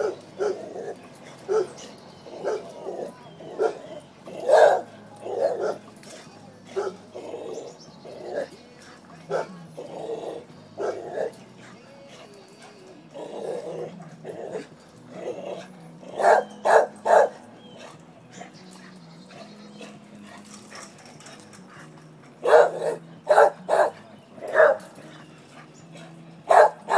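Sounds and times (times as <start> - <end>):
dog barking: 0.0 - 5.8, 6.7 - 7.0, 9.3 - 9.6, 10.8 - 11.4, 16.1 - 18.0, 22.4 - 25.0, 26.5 - 26.9.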